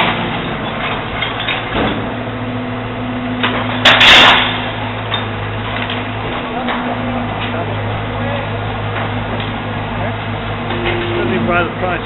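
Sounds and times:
crane motor humming: 0:00.0 - 0:12.0
refuse crashing: 0:03.3 - 0:08.0, 0:08.6 - 0:12.0.

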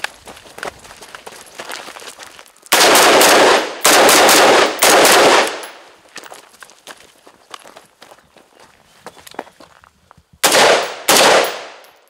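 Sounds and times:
rifle firing rapid shots: 0:02.7 - 0:05.8, 0:10.4 - 0:11.9.

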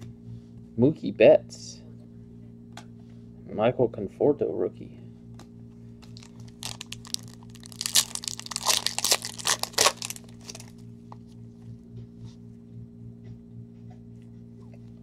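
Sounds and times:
foil wrapper crinkling: 0:06.0 - 0:10.8.

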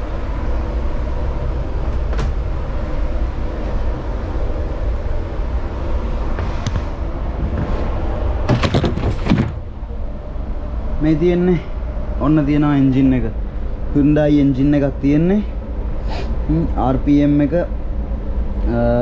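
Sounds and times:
low machinery hum: 0:00.0 - 0:19.0.

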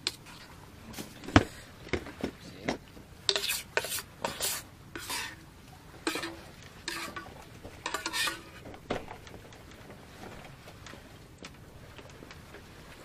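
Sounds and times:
metal ladle scraping a pot: 0:00.0 - 0:00.5, 0:03.3 - 0:08.6.

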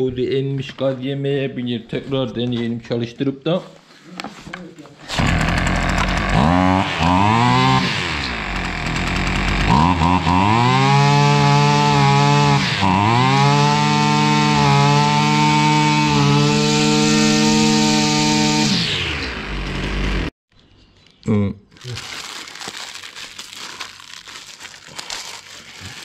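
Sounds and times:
brush cutter engine revving: 0:05.0 - 0:20.3.

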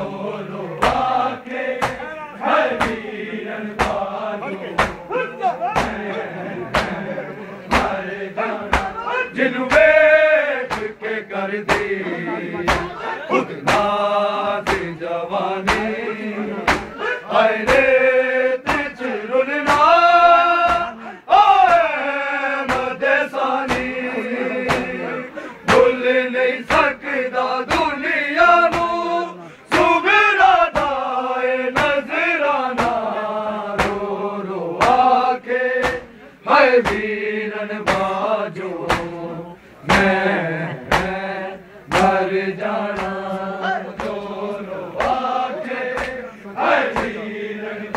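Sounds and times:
men chanting a lament: 0:00.0 - 0:47.9
hands slapping chests: 0:01.7 - 0:02.1, 0:02.7 - 0:03.0, 0:03.8 - 0:04.1, 0:04.8 - 0:05.0, 0:05.7 - 0:06.1, 0:06.7 - 0:07.0, 0:07.7 - 0:08.0, 0:08.7 - 0:09.0, 0:09.7 - 0:10.0, 0:10.7 - 0:11.0, 0:11.6 - 0:12.0, 0:12.6 - 0:13.0, 0:13.7 - 0:14.0, 0:14.6 - 0:15.0, 0:15.6 - 0:16.0, 0:16.7 - 0:17.0, 0:17.6 - 0:18.0, 0:18.6 - 0:19.0, 0:20.6 - 0:21.0, 0:22.6 - 0:23.0, 0:23.6 - 0:23.9, 0:24.7 - 0:25.0, 0:26.7 - 0:26.9, 0:27.7 - 0:27.9, 0:28.7 - 0:29.0, 0:31.8 - 0:32.0, 0:32.8 - 0:33.1, 0:33.8 - 0:34.1, 0:34.8 - 0:35.1, 0:35.8 - 0:36.1, 0:36.8 - 0:37.1, 0:37.8 - 0:38.2, 0:38.8 - 0:39.2, 0:39.9 - 0:40.2, 0:40.9 - 0:41.2, 0:41.9 - 0:42.2, 0:42.9 - 0:43.3, 0:43.9 - 0:44.3, 0:45.0 - 0:45.3, 0:45.9 - 0:46.2, 0:46.9 - 0:47.2.

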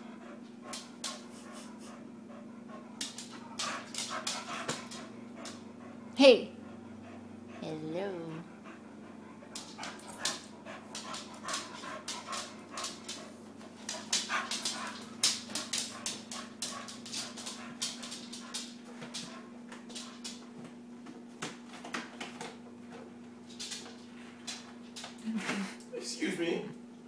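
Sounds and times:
puppy panting: 0:00.0 - 0:20.4
paws clicking and scuffling: 0:00.0 - 0:25.2.

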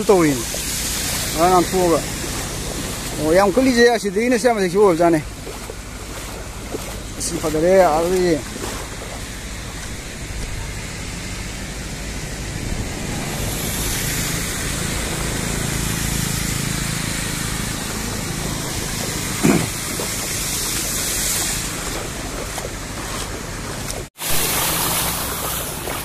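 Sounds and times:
floodwater rushing: 0:00.0 - 0:26.0
wind on microphone: 0:05.2 - 0:24.5.

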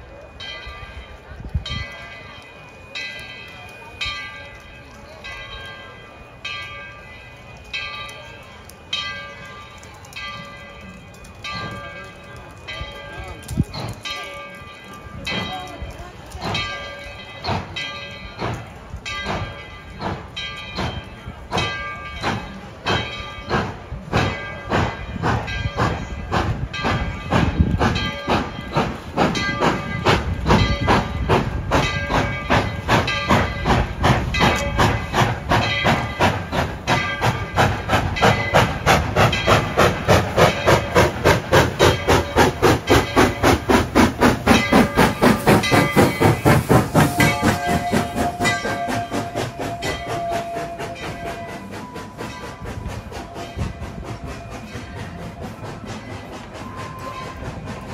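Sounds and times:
steam locomotive bell ringing: 0:00.0 - 0:57.9
steam locomotive exhaust chuffs: 0:00.0 - 0:57.9
train whistle: 0:47.1 - 0:52.2.

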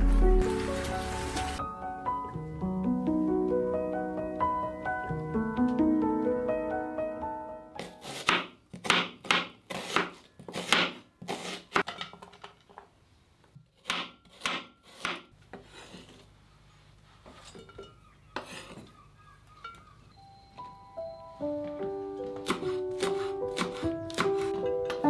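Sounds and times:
knife slicing onion on board: 0:07.8 - 0:11.9, 0:13.8 - 0:16.2, 0:22.4 - 0:24.6.

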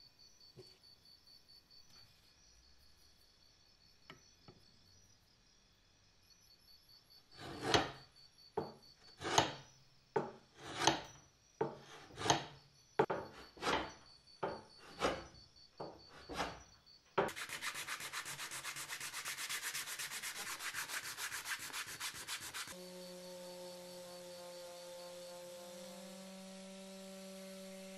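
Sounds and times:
abrasive scraping on wood: 0:07.4 - 0:08.0, 0:08.6 - 0:09.6, 0:10.2 - 0:22.8
fast sandpaper rubbing: 0:17.3 - 0:22.8
electric sander humming: 0:17.4 - 0:27.9.

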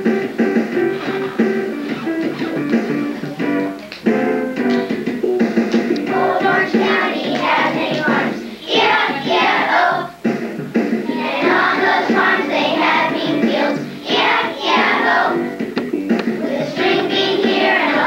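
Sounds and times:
musical accompaniment: 0:00.0 - 0:18.0
children singing together: 0:06.0 - 0:10.1, 0:11.0 - 0:15.5, 0:16.4 - 0:18.0.

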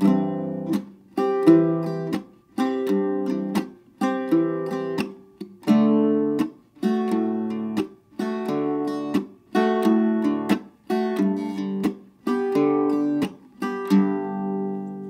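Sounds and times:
mandolin strumming and chopping: 0:00.0 - 0:15.0.

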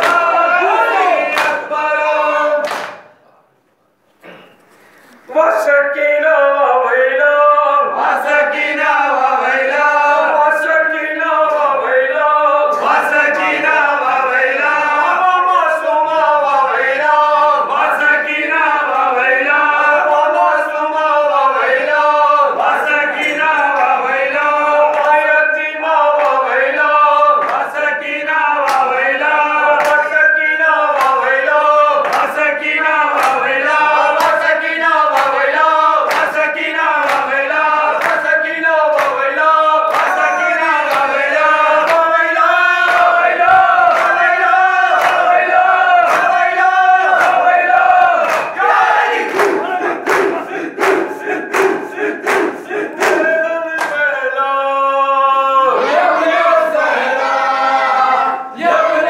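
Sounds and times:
men chanting in unison: 0:00.0 - 0:03.0, 0:05.4 - 0:59.0
lead voice on a microphone: 0:00.0 - 0:03.5
hands slapping on chests: 0:02.6 - 0:03.1, 0:36.1 - 0:36.4, 0:39.9 - 0:40.3, 0:48.2 - 0:54.0.

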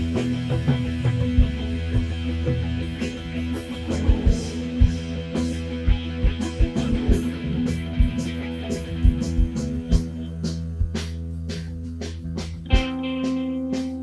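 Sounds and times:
guitar background music: 0:00.0 - 0:14.0
low beats: 0:00.0 - 0:14.0.

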